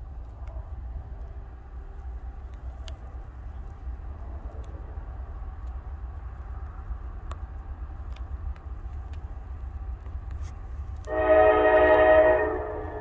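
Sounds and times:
low steady rumble: 0:00.0 - 0:13.0
locomotive air horn blast: 0:11.1 - 0:13.0.

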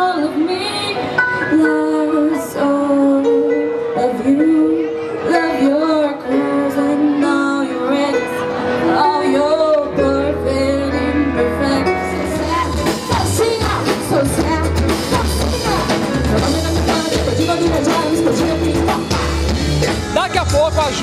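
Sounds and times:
woman singing into microphone: 0:00.0 - 0:19.8
bass: 0:09.4 - 0:21.0
drum kit: 0:12.1 - 0:21.0.

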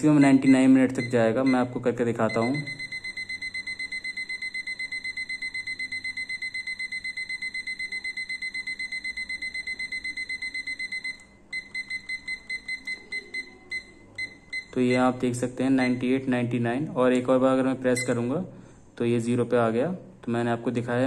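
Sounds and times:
digital kitchen timer beeping: 0:00.0 - 0:16.4, 0:17.9 - 0:18.3.

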